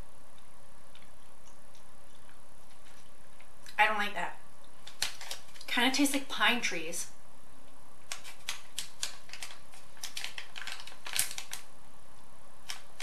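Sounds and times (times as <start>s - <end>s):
plastic bag crinkling: 4.8s - 5.8s, 8.1s - 11.7s.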